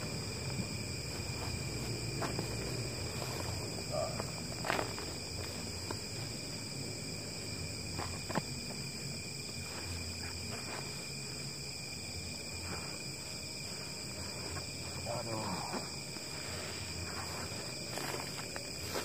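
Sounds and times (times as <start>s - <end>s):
backpack and clothing rustling: 0.0s - 6.6s, 16.2s - 19.0s
night insects chorus: 0.0s - 19.0s.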